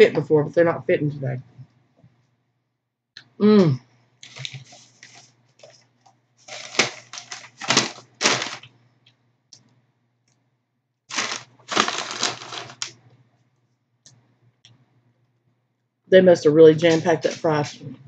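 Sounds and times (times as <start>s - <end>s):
paper carton crinkling: 4.2s - 5.8s, 6.4s - 8.7s, 11.1s - 12.9s.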